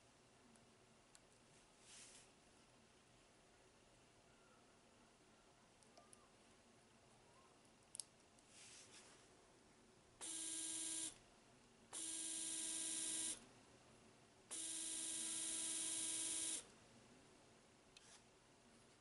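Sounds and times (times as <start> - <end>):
electric motor whine: 10.2 - 11.1, 12.0 - 13.4, 14.5 - 16.6.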